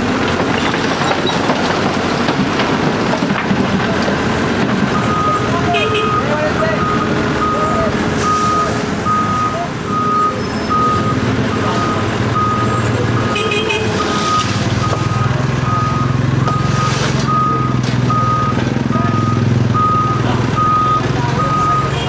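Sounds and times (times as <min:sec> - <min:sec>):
diesel engine running: 0:00.0 - 0:22.0
reversing alarm beeping: 0:04.9 - 0:22.0.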